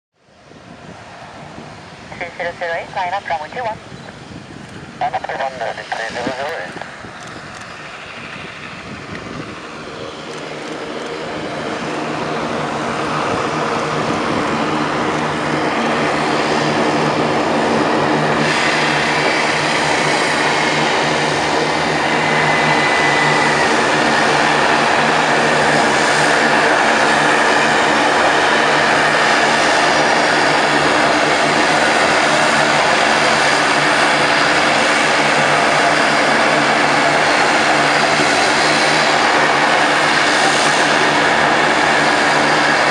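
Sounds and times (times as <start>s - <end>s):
high turbine whine: 0.2s - 42.9s
propeller drone: 0.2s - 42.9s.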